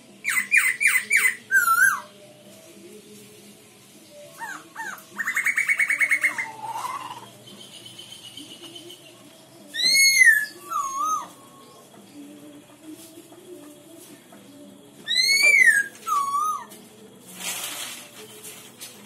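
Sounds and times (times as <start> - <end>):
bird calling with rattling trill: 0.2 - 2.1, 4.4 - 12.0, 15.1 - 16.8.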